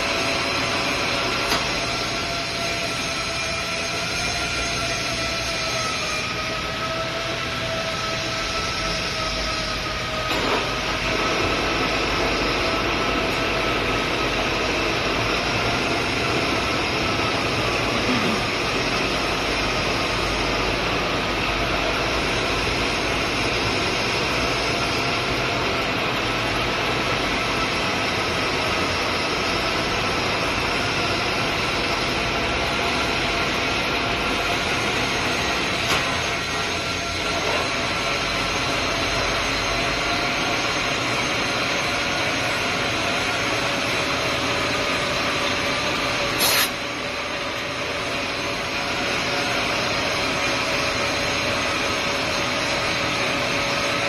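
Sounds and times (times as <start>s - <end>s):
metal lathe whirring: 0.0s - 54.0s.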